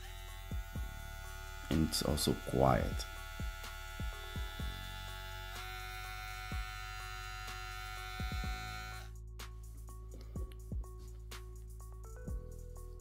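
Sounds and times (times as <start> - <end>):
hair trimmer humming: 0.0 - 9.2.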